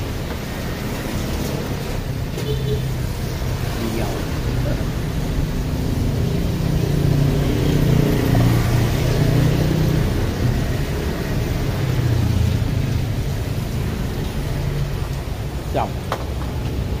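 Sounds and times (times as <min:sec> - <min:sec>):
vehicle engines rumbling past: 0:00.0 - 0:17.0.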